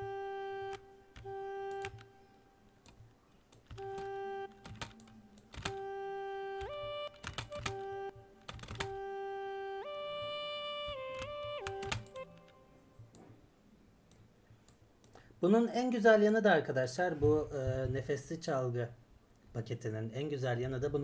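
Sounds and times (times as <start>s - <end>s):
duduk notes: 0.0s - 2.8s, 3.7s - 13.2s.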